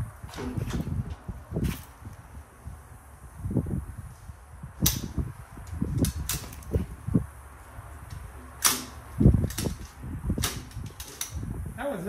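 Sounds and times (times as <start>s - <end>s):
rifle action metallic clacks: 6.0s - 6.7s, 8.1s - 11.4s.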